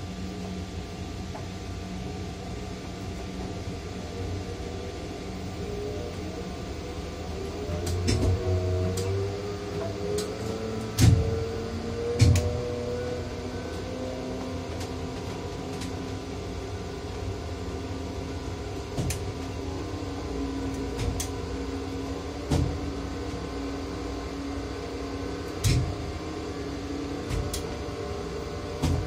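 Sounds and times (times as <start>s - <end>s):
crane electric drive hum: 0.0s - 29.0s
sharp knocks and clicks: 11.0s - 11.3s, 12.2s - 12.5s.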